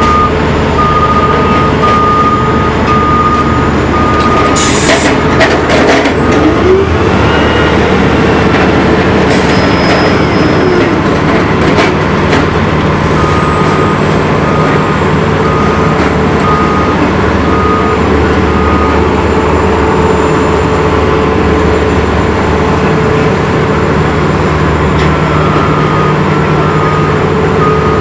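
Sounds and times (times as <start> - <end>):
backup alarm beeps: 0.0 - 4.6, 13.2 - 19.2, 25.3 - 28.0
heavy diesel engines running: 0.0 - 28.0.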